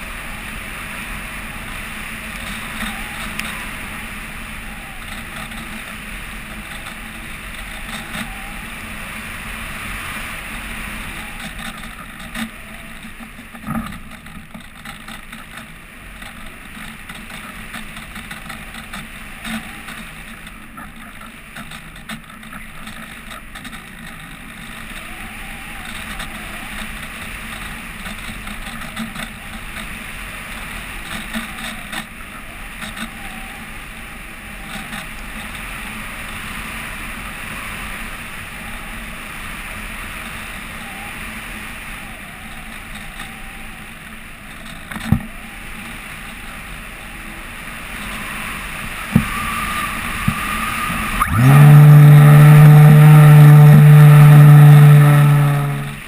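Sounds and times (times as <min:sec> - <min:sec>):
glider rushing drone: 0:00.0 - 0:56.0
light ticks: 0:02.4 - 0:03.6.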